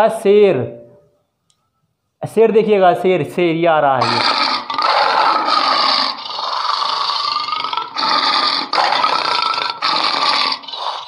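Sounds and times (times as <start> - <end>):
lion roaring and growling: 4.0 - 11.0.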